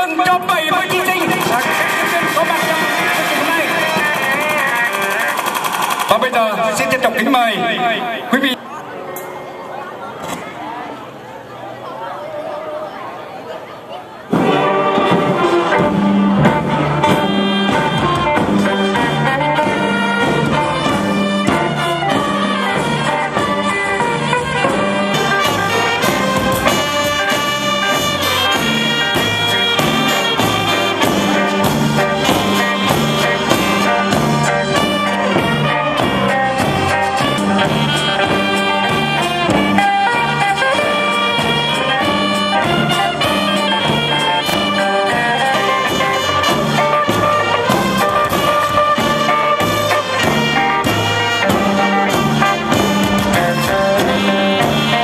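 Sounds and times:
brass band playing: 0.0s - 9.4s, 14.1s - 55.0s
bass drum: 14.4s - 55.0s
sousaphone bass line: 14.4s - 55.0s.

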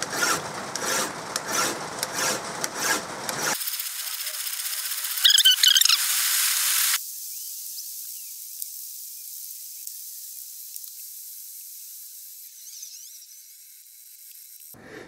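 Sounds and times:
file rasping on metal: 0.0s - 3.6s.

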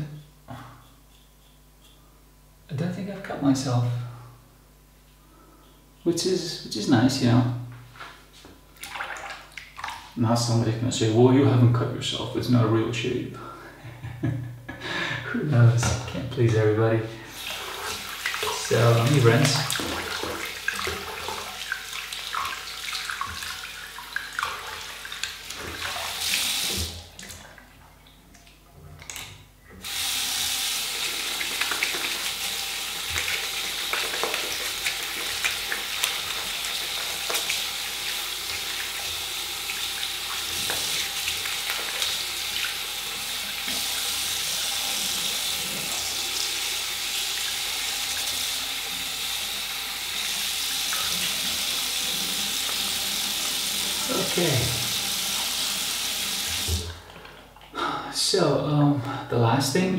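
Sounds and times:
water splashing: 8.8s - 10.2s, 17.3s - 29.2s, 30.3s - 46.5s
sink tap running: 15.8s - 27.1s, 29.8s - 57.0s.

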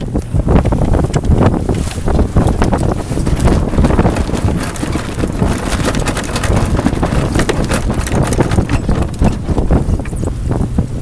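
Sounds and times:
water splashing along hull: 0.0s - 11.0s
wind buffeting microphone: 0.0s - 11.0s.

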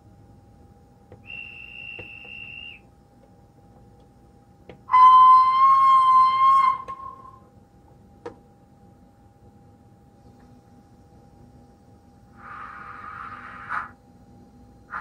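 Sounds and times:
thin high whistle: 1.2s - 2.8s, 4.9s - 7.5s
steam whistle blast: 1.3s - 2.8s, 4.9s - 7.4s.

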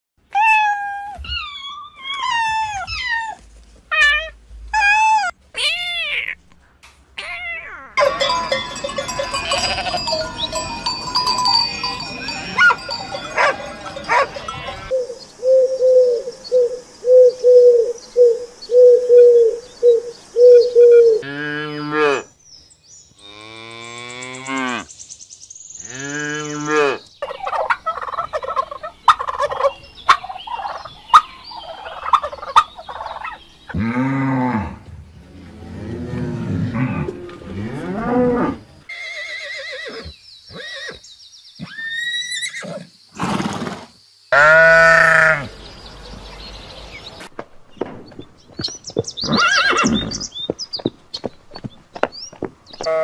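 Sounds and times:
kittens mewing: 0.3s - 6.4s, 7.2s - 8.3s
flock of sheep bleating: 8.0s - 10.3s
deep wavering bleats: 9.1s - 10.3s, 44.3s - 45.5s.

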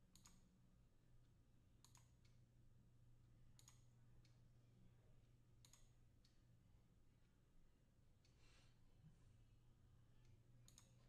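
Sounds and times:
low steady hum: 0.0s - 11.0s
computer mouse clicks: 0.1s - 0.5s, 1.8s - 2.4s, 3.6s - 3.9s, 5.6s - 6.0s, 10.6s - 11.0s.

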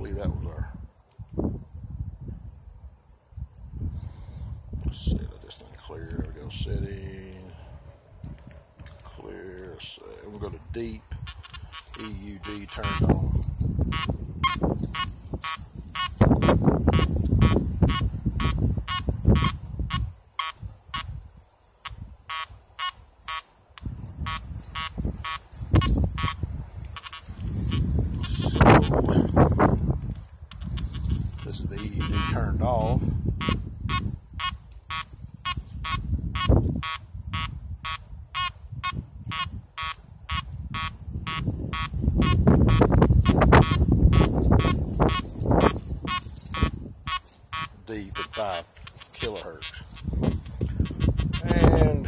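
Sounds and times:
coil rustling through pine needles: 7.8s - 17.7s, 42.8s - 51.1s
metal detector beeps: 11.2s - 13.1s, 13.9s - 21.1s, 22.3s - 28.9s, 30.5s - 32.4s, 33.4s - 51.6s.

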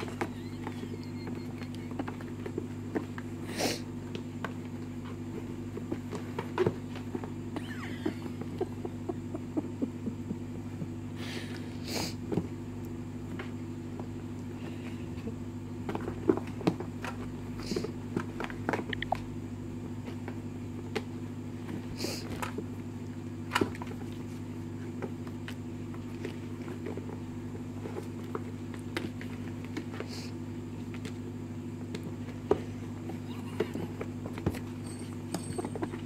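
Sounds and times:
kittens tapping cardboard box: 0.0s - 3.4s, 4.0s - 11.0s, 13.3s - 19.3s, 23.4s - 31.2s, 31.8s - 36.0s
kittens scratching: 0.0s - 11.0s, 14.6s - 19.4s, 23.5s - 31.3s, 32.2s - 36.0s
low mechanical hum: 0.0s - 36.0s.

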